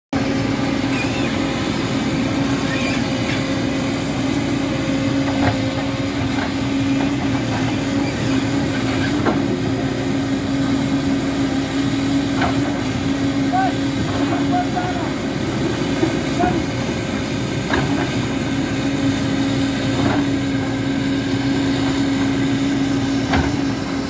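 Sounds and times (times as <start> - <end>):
excavator diesel engine running: 0.2 - 24.0
machine squeaks: 0.9 - 1.4, 2.6 - 3.4.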